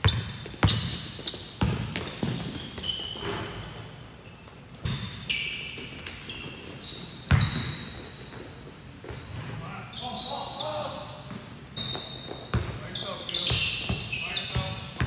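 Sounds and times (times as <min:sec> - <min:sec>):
basketball bouncing on gym floor: 0:00.0 - 0:03.4, 0:07.3 - 0:07.8, 0:11.3 - 0:12.8, 0:13.4 - 0:15.0
sneaker squeaks: 0:00.0 - 0:15.0.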